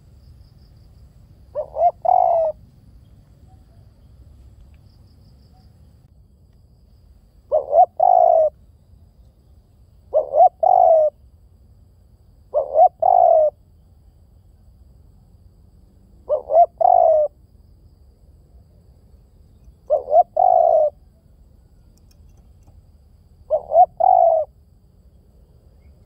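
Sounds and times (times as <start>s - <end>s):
dove cooing: 1.5s - 2.7s, 7.5s - 8.6s, 10.1s - 11.2s, 12.5s - 13.6s, 16.3s - 17.4s, 19.9s - 21.1s, 23.5s - 24.6s.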